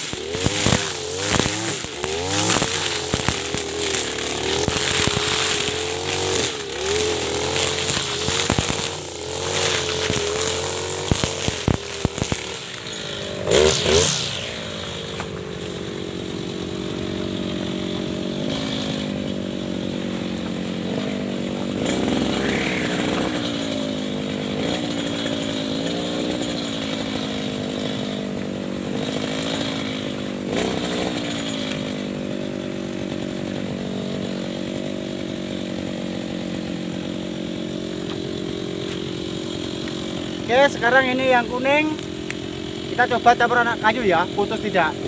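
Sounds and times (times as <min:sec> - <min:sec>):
brush cutter engine running: 0:00.0 - 0:45.0.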